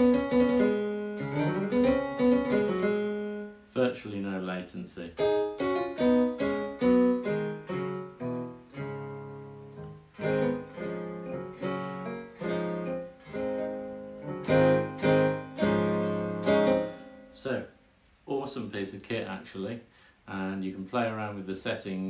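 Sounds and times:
synthesized guitar notes and chords: 0.0s - 3.7s, 5.2s - 17.4s.

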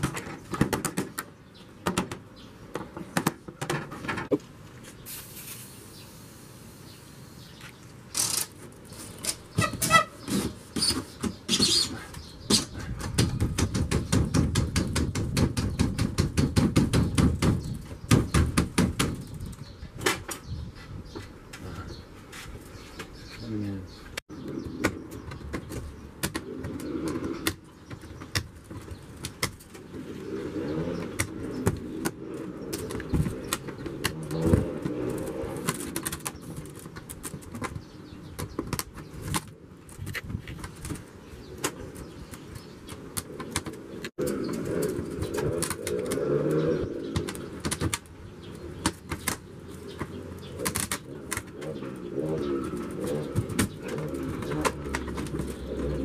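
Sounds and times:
dove cooing: 50.4s - 56.0s.

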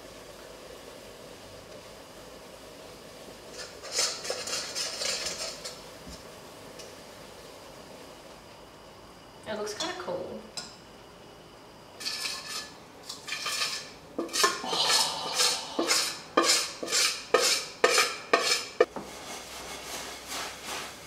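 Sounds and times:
metal spoon scraping a dish: 3.6s - 5.8s, 12.0s - 18.9s.

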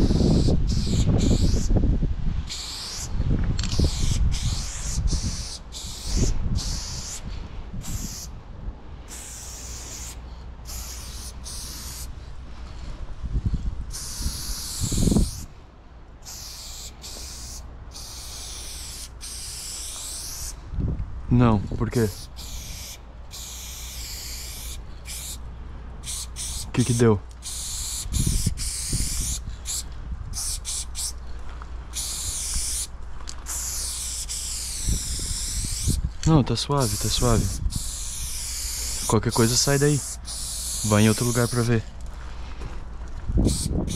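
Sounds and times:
spray paint can hissing: 0.0s - 1.8s, 2.4s - 8.3s, 9.1s - 12.1s, 13.9s - 15.5s, 16.2s - 20.6s, 22.1s - 25.4s, 26.0s - 31.2s, 31.9s - 36.1s, 36.8s - 41.8s, 43.4s - 43.9s
low steady rumble: 5.0s - 14.6s, 16.9s - 41.2s.

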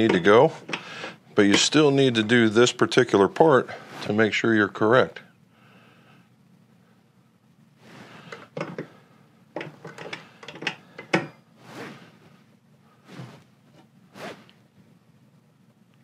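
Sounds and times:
tools clicking and knocking: 8.3s - 8.9s, 9.6s - 11.4s
soft swishes: 11.6s - 12.4s, 13.0s - 13.5s, 14.1s - 14.5s.

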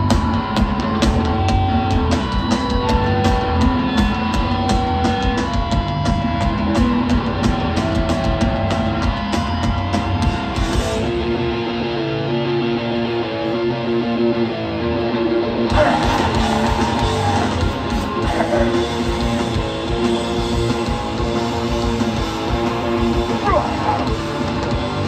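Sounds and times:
distorted electric guitar: 0.0s - 25.0s
punk band playing live: 0.0s - 25.0s.

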